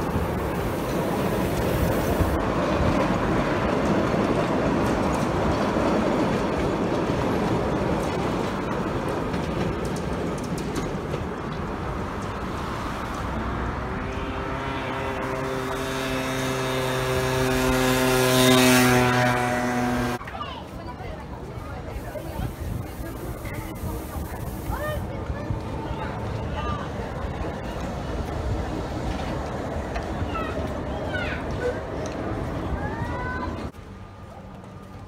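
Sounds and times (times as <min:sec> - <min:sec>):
tram wheels rumbling on rails: 0:00.0 - 0:35.0
motor scooter engine humming: 0:13.8 - 0:20.2.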